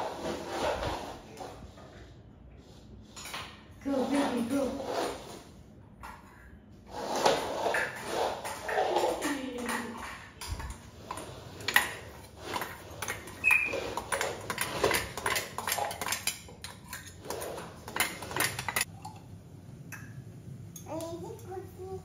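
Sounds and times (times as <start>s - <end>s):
kitchen vessels and lids clinking: 7.7s - 19.3s.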